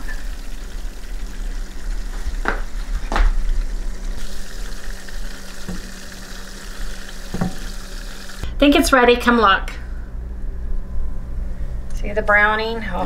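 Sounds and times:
butter sizzling and bubbling: 0.0s - 8.5s.

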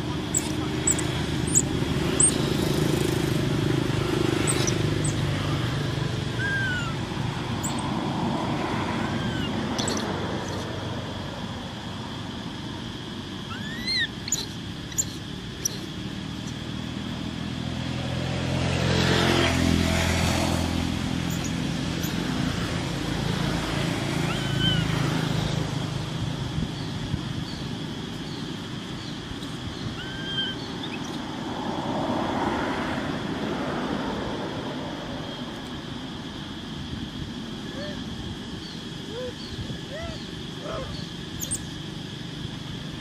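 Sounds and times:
vehicle passing: 0.0s - 12.0s, 13.5s - 27.2s, 30.6s - 35.4s
road traffic rumble: 0.0s - 43.0s.

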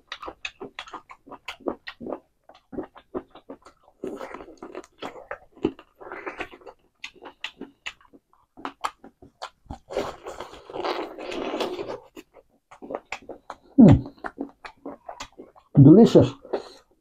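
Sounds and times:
person chewing with wet smacks: 0.0s - 17.0s
sucking and slurping: 9.8s - 12.0s.

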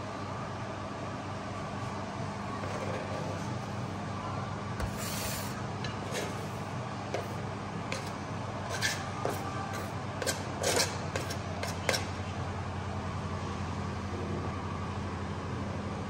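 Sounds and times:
steady low hum: 0.0s - 16.0s
knife scraping cutting board: 4.8s - 12.1s.

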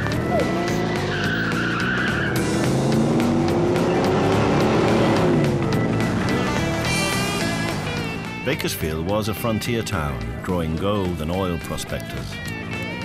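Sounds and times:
rock music: 0.0s - 13.0s
car engine revving past: 2.0s - 8.2s.

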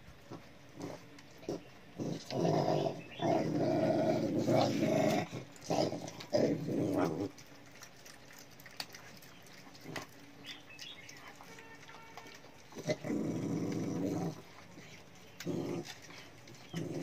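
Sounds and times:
small dog growling: 0.8s - 10.2s, 12.7s - 17.0s
dogs eating from pans: 4.3s - 17.0s.

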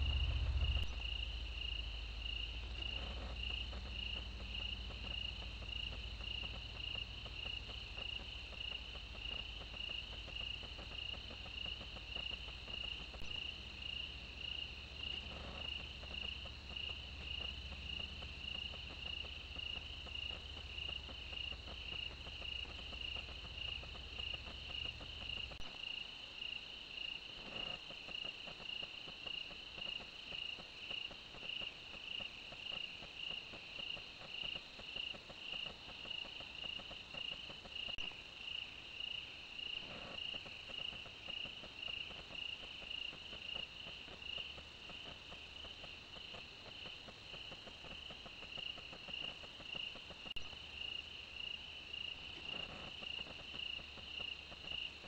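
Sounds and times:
low hum: 0.0s - 25.6s
crickets chirping: 0.0s - 55.0s
faint insect trill: 0.0s - 55.0s.

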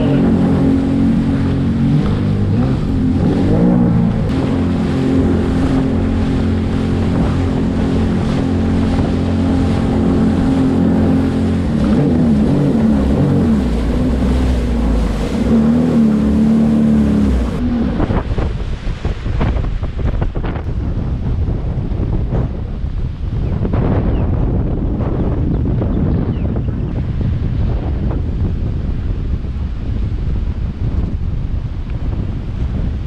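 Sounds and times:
water splashing: 0.0s - 20.7s
jet ski engine running: 0.0s - 33.0s
wind on microphone: 0.0s - 33.0s.

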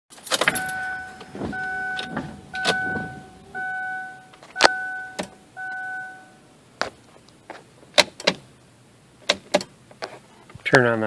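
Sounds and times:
car warning chime beeping: 0.4s - 6.6s.

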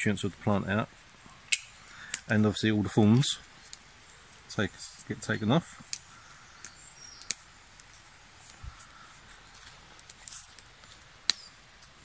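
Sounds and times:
bark being stripped rustling: 5.8s - 12.0s.

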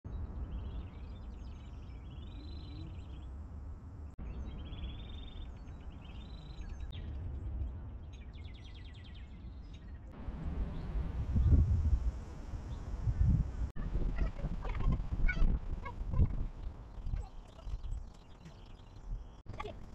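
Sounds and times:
songbirds trilling and chirping: 0.1s - 11.6s, 12.6s - 19.9s
low outdoor rumble: 0.1s - 19.9s.

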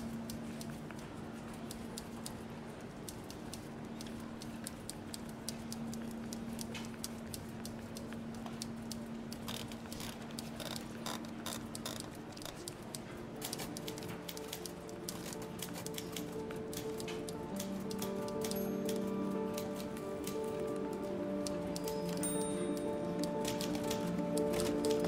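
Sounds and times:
light clicks and ticks: 0.0s - 25.0s
held musical notes: 12.5s - 25.0s.

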